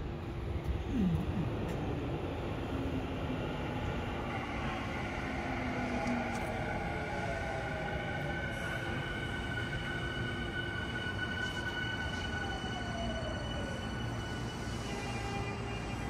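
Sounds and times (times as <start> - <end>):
train inverter whine: 0.0 - 16.0
train braking: 3.6 - 16.0.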